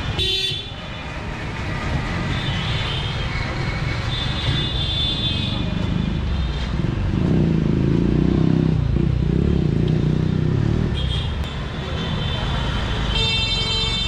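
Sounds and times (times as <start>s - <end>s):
street traffic noise: 0.0s - 14.0s.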